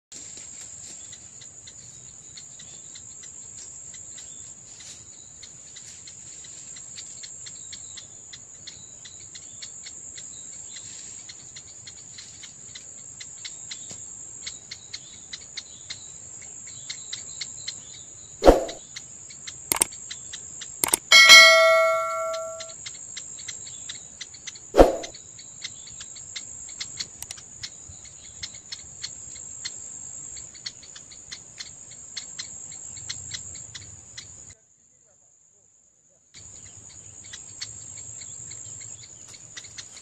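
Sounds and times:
insects trilling: 0.2 - 21.9, 22.8 - 35.2, 36.4 - 40.0
short ticks: 20.8 - 22.7.

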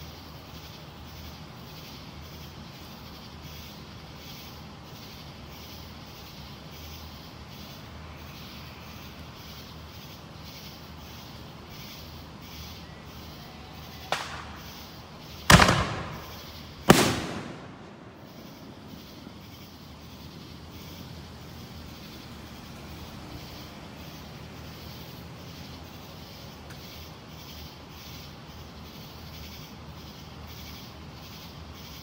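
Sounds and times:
fireworks booming: 13.9 - 19.8.

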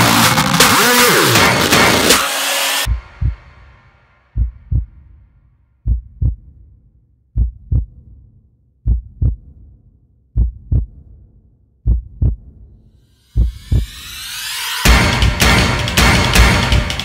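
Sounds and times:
heartbeat thumps: 2.9 - 3.5, 4.4 - 5.2, 5.8 - 6.6, 7.4 - 8.2, 8.8 - 11.2, 11.8 - 12.7, 13.3 - 14.0.

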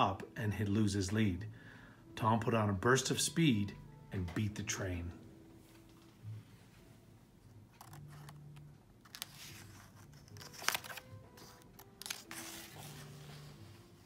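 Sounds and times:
book pages rustling: 7.7 - 14.0.

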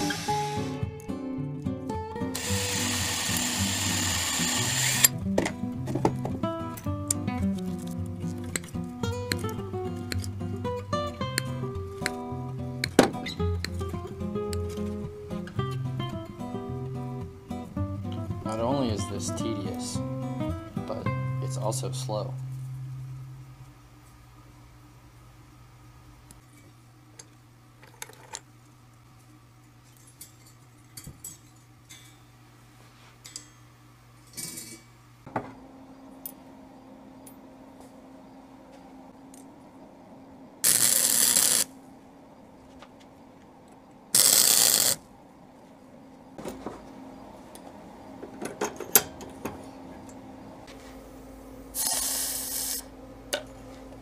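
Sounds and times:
arc welding bursts: 0.0 - 0.9, 2.3 - 5.2, 40.6 - 41.8, 44.2 - 45.1, 51.8 - 52.9
low machine hum: 0.0 - 54.0
hot metal sizzling in water: 2.4 - 5.1, 40.6 - 41.7, 44.2 - 45.0, 51.8 - 52.9.

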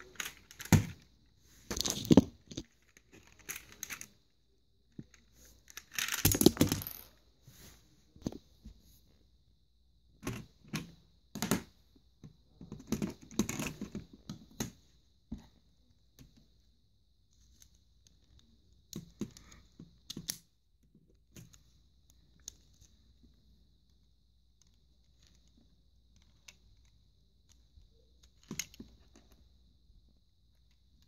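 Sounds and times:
plastic bricks clicking and clattering: 5.8 - 7.1.

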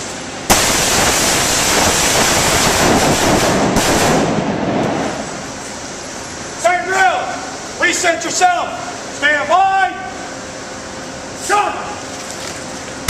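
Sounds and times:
rapid overlapping gunfire: 0.5 - 4.5.

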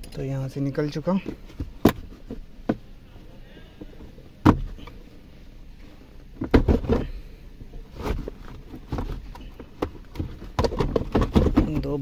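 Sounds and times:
plastic clatter: 8.0 - 12.0.

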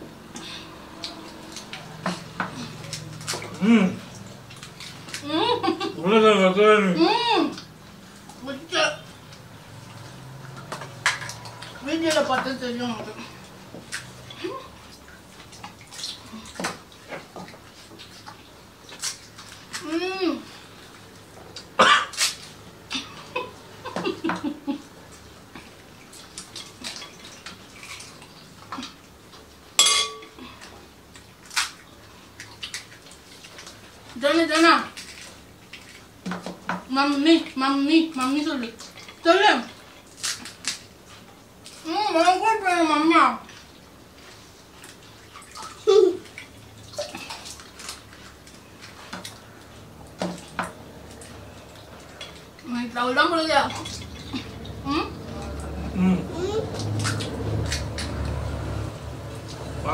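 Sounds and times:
dishes clinking and tapping: 29.8 - 30.4.

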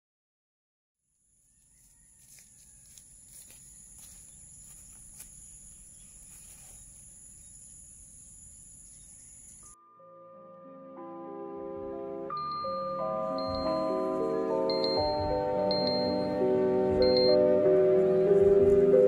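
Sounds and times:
marimba-like mallet notes: 12.3 - 17.6.

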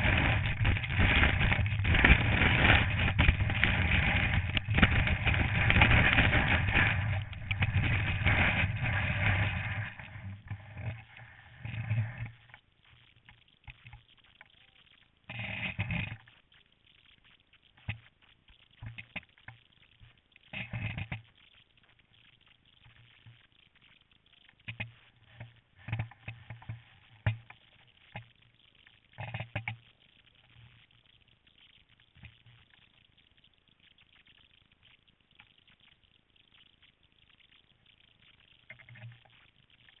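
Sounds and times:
skis scraping on snow: 0.0 - 10.4.

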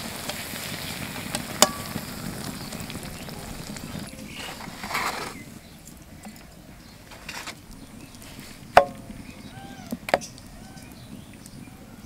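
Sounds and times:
food sizzling in hot oil: 0.0 - 5.6.

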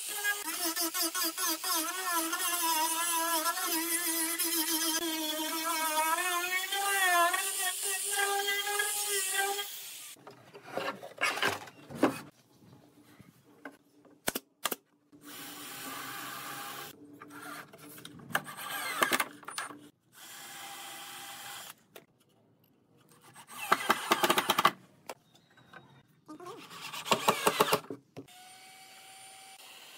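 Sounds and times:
cordless drill boring into wood: 20.2 - 21.8, 26.9 - 29.9.

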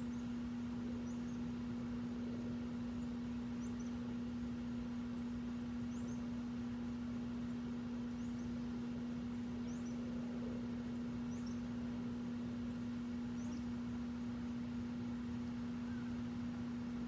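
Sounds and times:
steady low hum: 0.0 - 17.0
bird chirping: 3.0 - 4.0, 5.9 - 6.3, 7.5 - 8.7, 9.6 - 10.0, 11.2 - 11.7, 13.3 - 13.8.

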